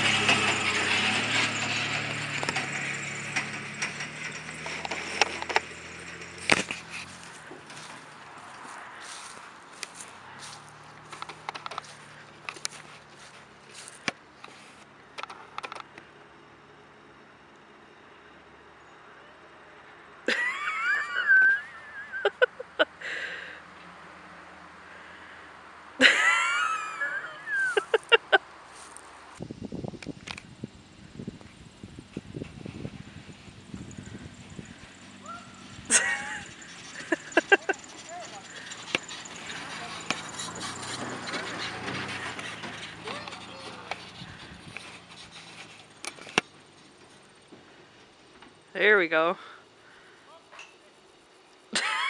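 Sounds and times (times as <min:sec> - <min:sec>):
sharp clicks and rattles: 0:00.0 - 0:08.6, 0:11.0 - 0:13.0, 0:15.2 - 0:16.0, 0:33.6 - 0:47.2
pickup truck engine running: 0:00.0 - 0:14.5, 0:29.4 - 0:48.3
person laughing hard: 0:20.3 - 0:23.3, 0:26.0 - 0:28.4, 0:35.9 - 0:37.8, 0:51.7 - 0:52.0
breathy inhale: 0:23.0 - 0:23.7, 0:49.4 - 0:50.3.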